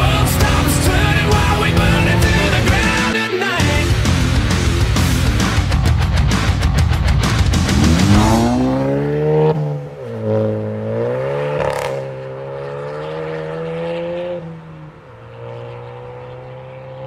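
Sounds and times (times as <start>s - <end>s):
car accelerating through gears: 0.0s - 3.2s, 7.6s - 17.0s
exhaust crack: 0.0s - 12.3s.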